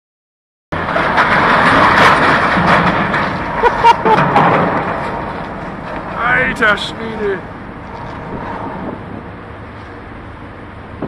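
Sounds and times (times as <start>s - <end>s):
metal knocks: 0.8s - 6.9s
steel hull grinding: 0.8s - 11.0s.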